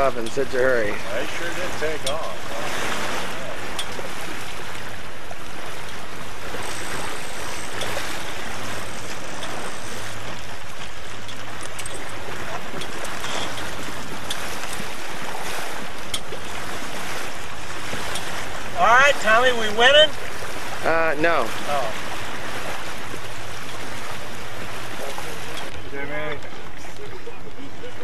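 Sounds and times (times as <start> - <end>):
water rushing past hull: 0.0 - 28.0.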